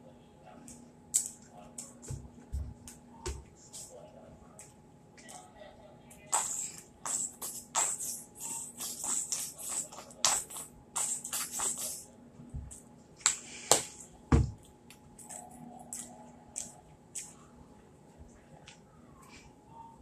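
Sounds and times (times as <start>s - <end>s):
squeeze bottle squirting: 6.3s - 12.0s.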